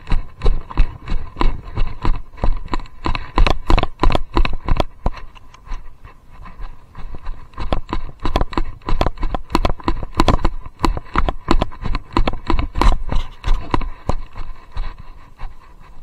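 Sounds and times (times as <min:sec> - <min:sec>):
camera rattling in harness mount: 0:07.2 - 0:14.2.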